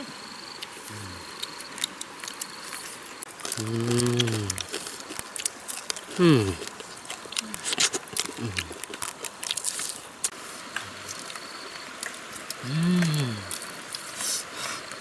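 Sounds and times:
chewing and lip-smacking: 0:00.6 - 0:14.3
person humming: 0:00.9 - 0:01.3, 0:03.5 - 0:04.7, 0:06.1 - 0:06.6, 0:08.3 - 0:08.7, 0:12.6 - 0:13.6.

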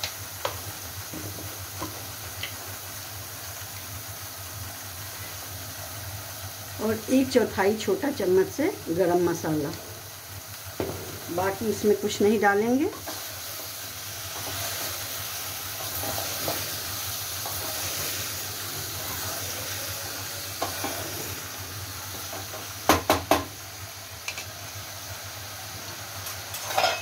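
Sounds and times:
vegetables sizzling in oil: 0:00.0 - 0:27.0
wooden spatula scraping: 0:15.8 - 0:21.4.

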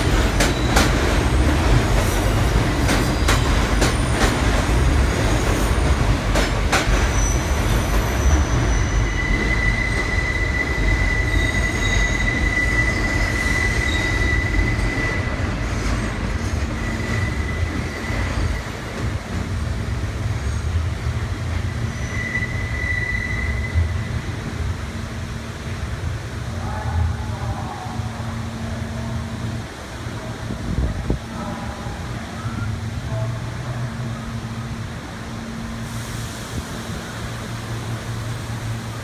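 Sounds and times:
subway train rumbling on track: 0:00.0 - 0:39.0
high wheel squeal: 0:07.1 - 0:15.6, 0:16.6 - 0:19.0, 0:21.7 - 0:24.2.

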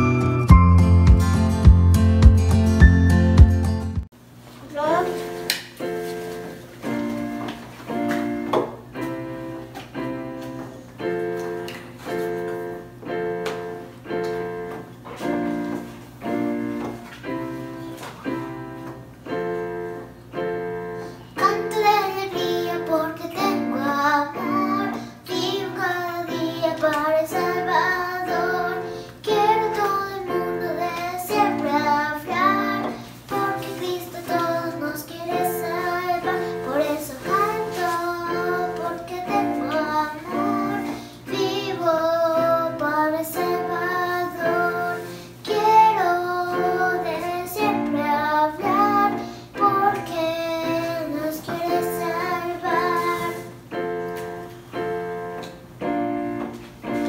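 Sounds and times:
electronic keyboard chords: 0:00.0 - 0:04.1
girl singing: 0:21.2 - 0:53.9.

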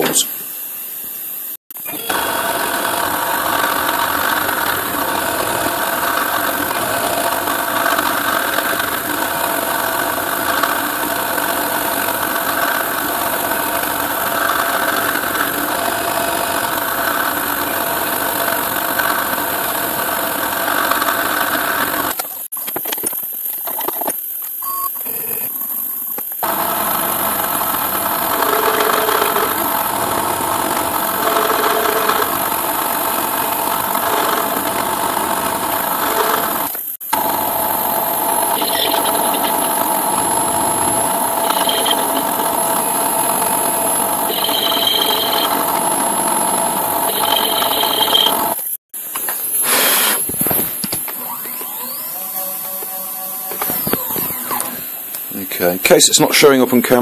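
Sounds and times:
milling machine drilling metal: 0:01.8 - 0:22.2, 0:26.4 - 0:48.8.

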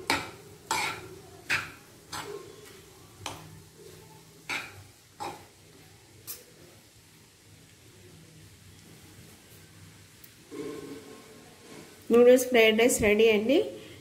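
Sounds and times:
steel spoon scraping a pan: 0:00.0 - 0:05.5, 0:10.5 - 0:12.0.

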